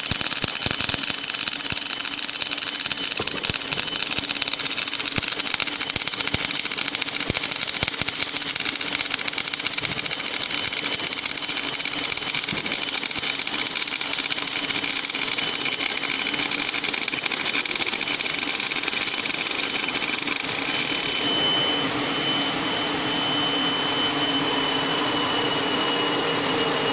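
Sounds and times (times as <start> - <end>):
welding arc crackling: 0.0 - 21.3
welding machine hum: 0.0 - 21.4
steady high whine: 0.0 - 26.9.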